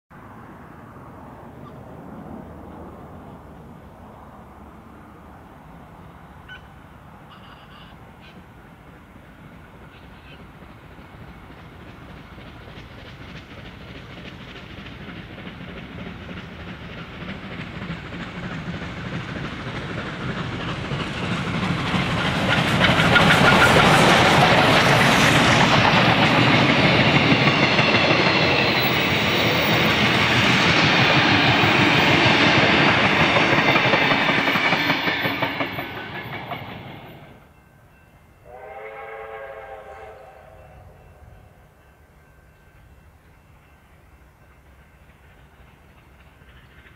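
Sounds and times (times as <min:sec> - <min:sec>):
distant steam whistle: 0:06.4 - 0:08.4, 0:38.2 - 0:42.9
steam locomotive exhaust: 0:06.4 - 0:46.9
wheels clicking over rail joints: 0:09.9 - 0:37.3.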